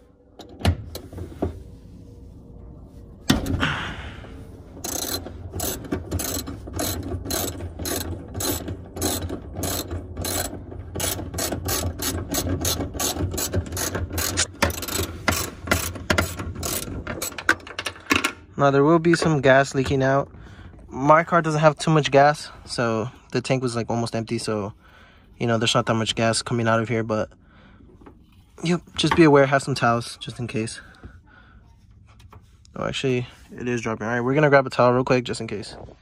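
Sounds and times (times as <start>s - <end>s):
ratchet wrench clicking: 4.8s - 17.5s.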